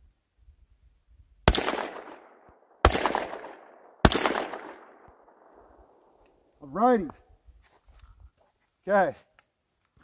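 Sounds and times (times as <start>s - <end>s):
shotgun shots with echo: 1.5s - 5.3s.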